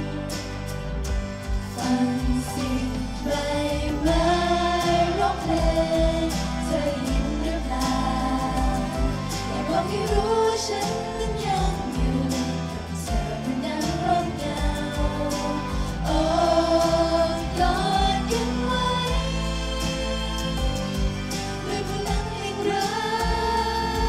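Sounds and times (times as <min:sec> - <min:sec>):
amplified backing music with beat: 0:00.0 - 0:24.0
women singing into microphones: 0:01.5 - 0:24.0.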